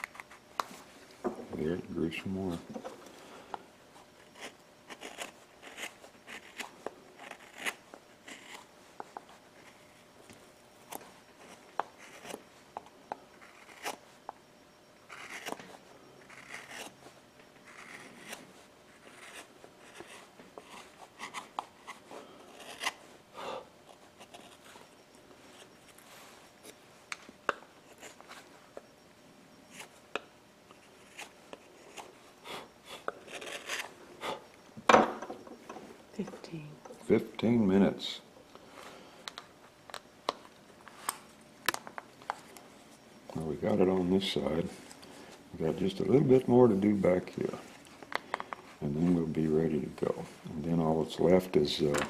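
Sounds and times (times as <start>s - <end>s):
carving gouge cutting wood: 4.3s - 8.7s, 11.4s - 12.4s, 13.4s - 14.0s, 15.1s - 17.0s, 17.6s - 23.0s, 23.9s - 24.7s, 30.7s - 34.4s.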